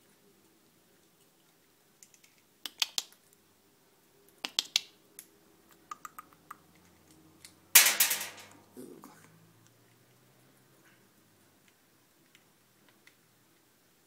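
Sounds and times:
beak clicking on plastic toy: 0:02.0 - 0:03.2.

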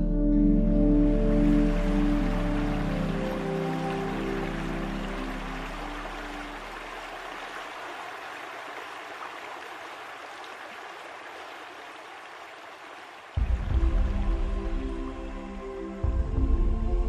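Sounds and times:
music: 0:00.0 - 0:06.8, 0:13.4 - 0:17.0
running water hiss: 0:01.0 - 0:15.8.

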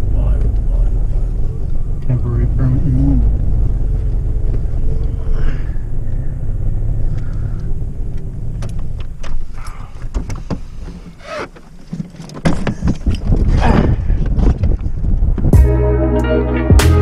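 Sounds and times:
pickup engine running: 0:00.0 - 0:11.9
clicks and knocks in cab: 0:08.2 - 0:13.5.

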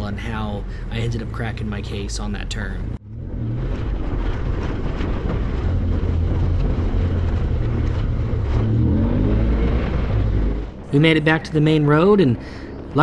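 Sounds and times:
rushing noise: 0:03.0 - 0:11.8.

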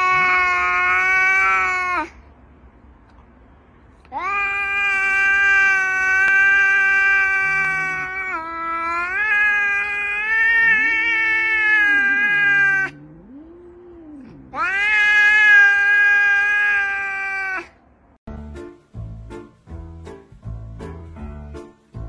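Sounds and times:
cat yowling: 0:00.0 - 0:02.2, 0:04.1 - 0:17.8.

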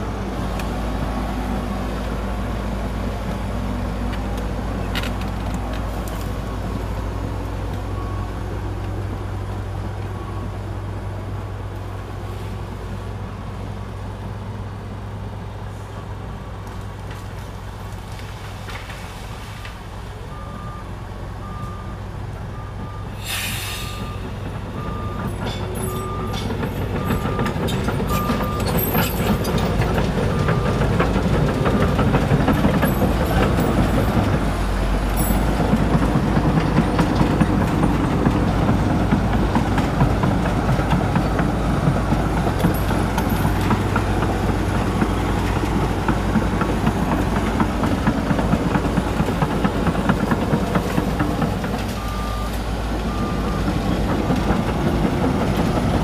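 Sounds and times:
bulldozer diesel engine running: 0:00.0 - 0:18.5, 0:19.8 - 0:56.0
reversing alarm beeping: 0:20.3 - 0:29.6, 0:51.9 - 0:53.9
burst of hiss: 0:23.2 - 0:24.0.

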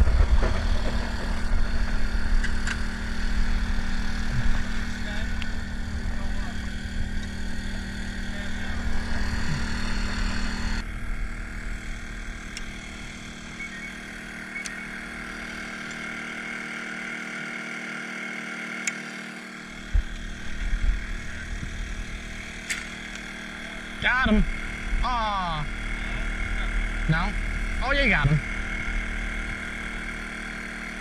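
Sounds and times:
low thumps: 0:00.0 - 0:08.0, 0:19.8 - 0:22.1
small boat engine humming: 0:00.0 - 0:31.0.

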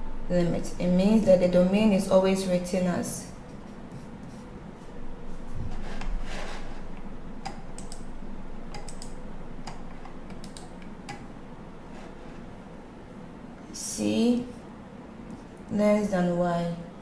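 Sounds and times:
computer keystroke clicks: 0:07.4 - 0:08.1, 0:08.7 - 0:11.2.

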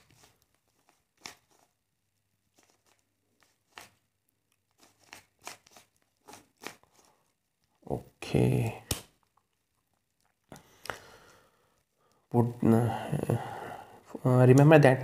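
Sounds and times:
puzzle cube clicking scrapes: 0:04.6 - 0:07.4.

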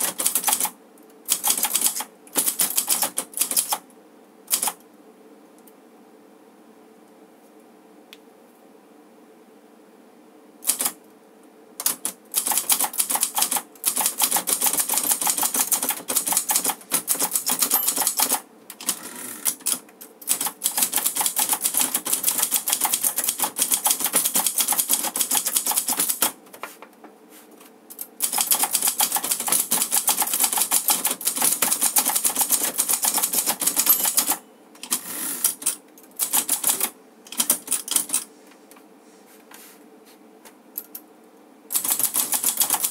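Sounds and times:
manual typewriter typing: 0:00.0 - 0:03.8, 0:04.5 - 0:04.8, 0:10.6 - 0:11.0, 0:11.8 - 0:26.4, 0:27.9 - 0:38.3, 0:41.7 - 0:42.9.

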